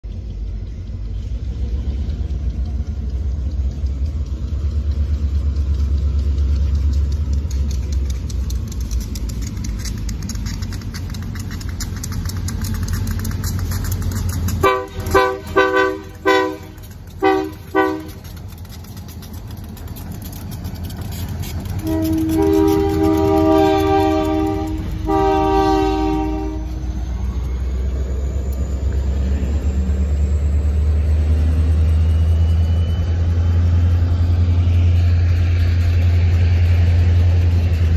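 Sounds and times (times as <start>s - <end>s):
locomotive low rumble: 0.0s - 37.9s
locomotive horn blasts: 14.6s - 18.4s, 21.7s - 26.9s.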